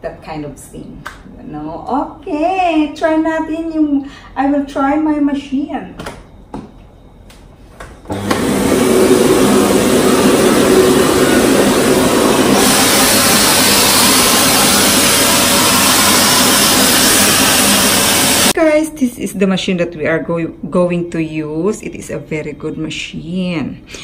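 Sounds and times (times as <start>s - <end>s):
vacuum cleaner running: 8.0s - 18.6s
vacuum nozzle on curtain: 8.1s - 18.6s.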